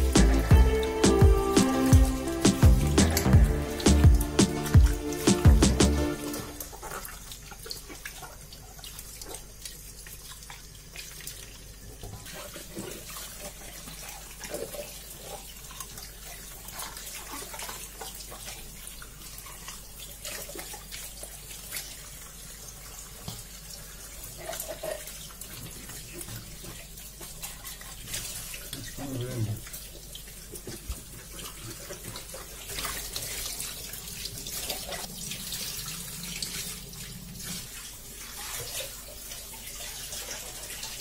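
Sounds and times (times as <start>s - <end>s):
hands rinsing vegetables: 0.0s - 41.0s
small water splashes: 3.2s - 41.0s.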